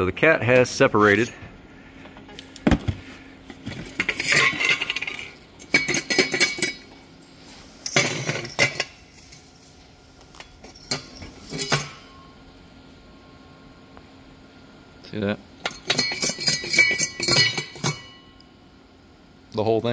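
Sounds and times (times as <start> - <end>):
ceramic pieces rattling in metal: 3.8 - 7.0, 7.8 - 9.1, 15.6 - 18.1.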